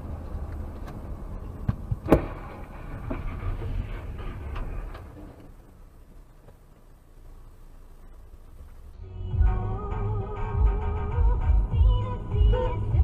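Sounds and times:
car engine and road rumble: 0:00.0 - 0:13.0
loud collision bang: 0:02.0 - 0:05.0.

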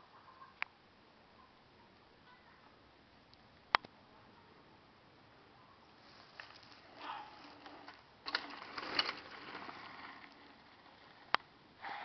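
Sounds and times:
bike tyres rolling on dirt: 0:05.8 - 0:12.0.

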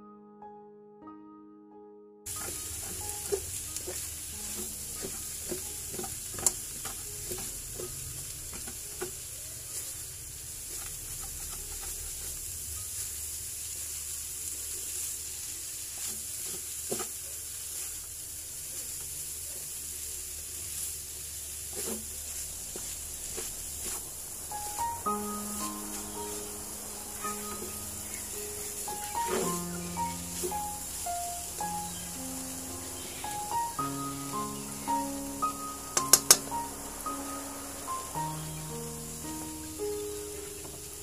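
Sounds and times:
spatula scraping a pan: 0:02.3 - 0:08.0, 0:10.7 - 0:12.4
fish sizzling in a wok: 0:02.3 - 0:41.0.

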